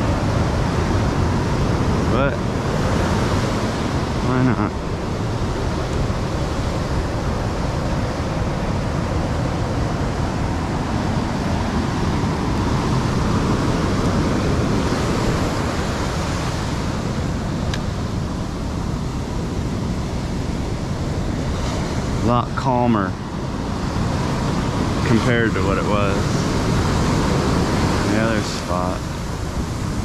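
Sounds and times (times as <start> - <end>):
ocean surf breaking on beach: 0.0 - 30.0.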